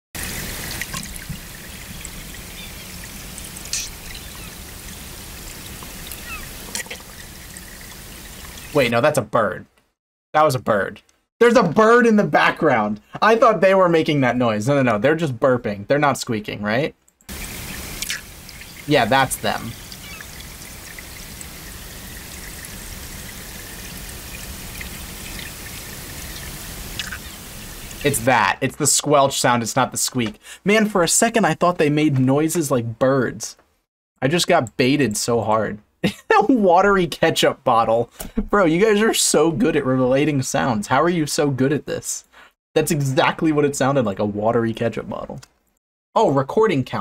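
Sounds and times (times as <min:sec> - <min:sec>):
flowing water underwater: 0:00.2 - 0:08.8, 0:17.3 - 0:28.2
faint bird chirps: 0:04.1 - 0:04.6, 0:06.2 - 0:06.5, 0:19.6 - 0:20.4
fish squelching pops: 0:17.3 - 0:18.3, 0:26.9 - 0:27.3.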